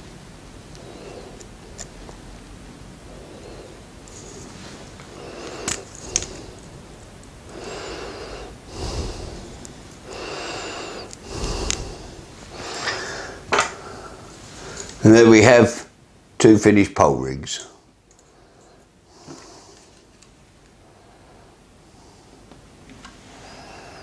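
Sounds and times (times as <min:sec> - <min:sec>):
man breathing through nose: 0:00.7 - 0:01.8, 0:03.0 - 0:15.0, 0:18.2 - 0:20.1, 0:20.8 - 0:22.5, 0:23.2 - 0:24.0.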